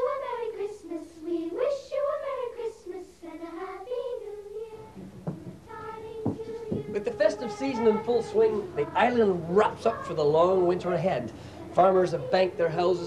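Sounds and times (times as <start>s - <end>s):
short knocks: 5.0s - 7.1s
high solo voice singing: 5.7s - 13.0s.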